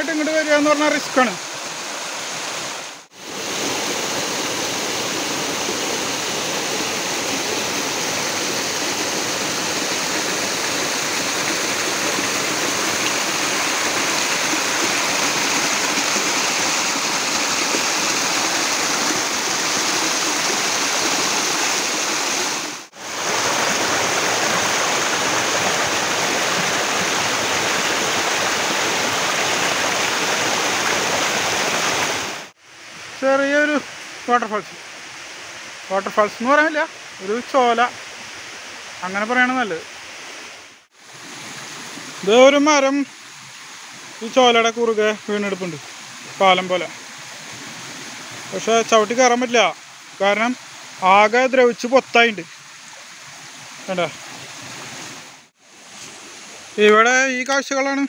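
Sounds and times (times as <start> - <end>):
stream cascading over rocks: 0.0 - 58.0.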